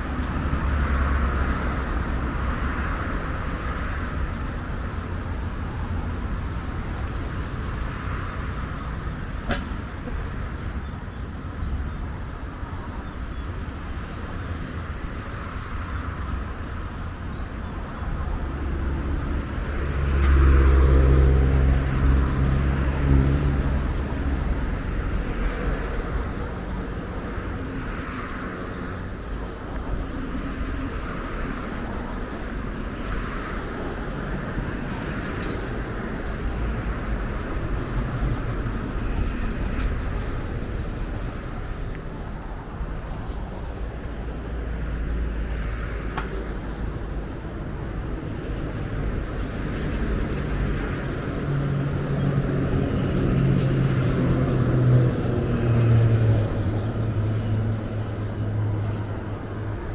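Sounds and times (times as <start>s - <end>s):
traffic rumble: 0.0s - 59.9s.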